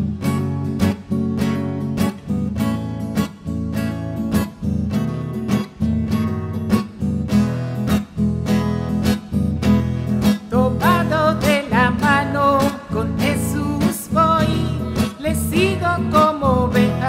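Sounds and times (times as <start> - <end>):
acoustic guitar strumming: 0.0 - 17.0
person singing: 10.4 - 17.0.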